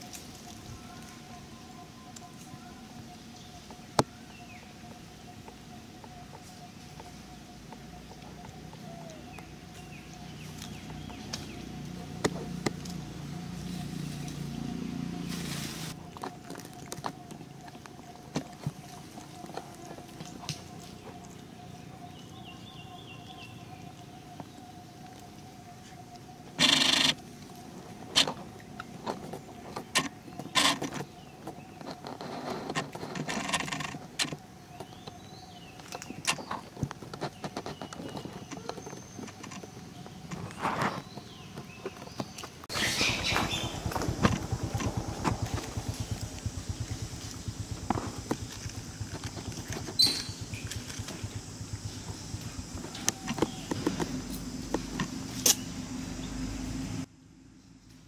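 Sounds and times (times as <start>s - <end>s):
monkeys rustling and scuffling: 0.0s - 2.6s, 5.4s - 22.6s, 23.2s - 56.0s
faint chirps: 37.8s - 58.0s
low hum: 42.7s - 58.0s.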